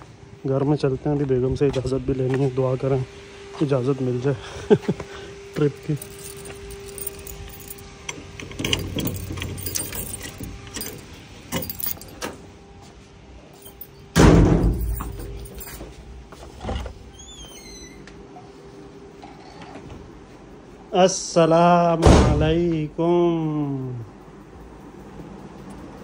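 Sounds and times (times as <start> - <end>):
keys jangling: 5.6 - 12.4, 13.6 - 16.0
door slamming shut: 14.2 - 15.1, 22.0 - 22.6.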